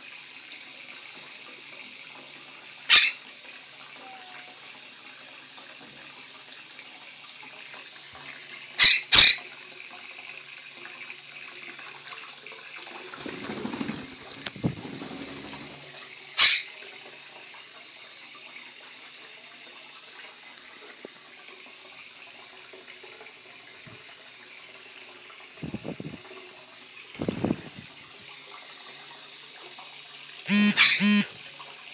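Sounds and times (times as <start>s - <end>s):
tap water running into a sink: 0.0s - 31.9s
parrot splashing and wing-flapping: 12.9s - 16.7s, 27.2s - 28.1s, 30.5s - 31.3s.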